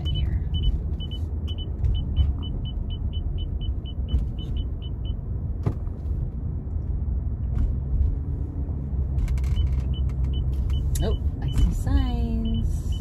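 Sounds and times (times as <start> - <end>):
turn signal ticking: 0.0 - 5.6, 9.0 - 13.0
car road and engine rumble: 0.0 - 13.0.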